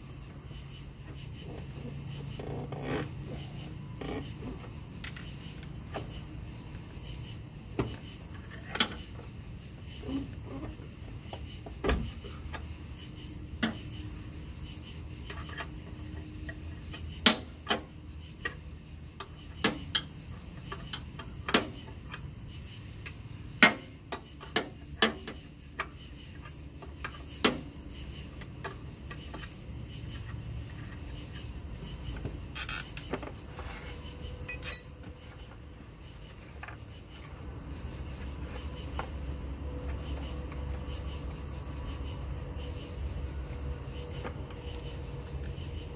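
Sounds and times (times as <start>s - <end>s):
metallic clicks of steel tools: 34.5s - 35.1s.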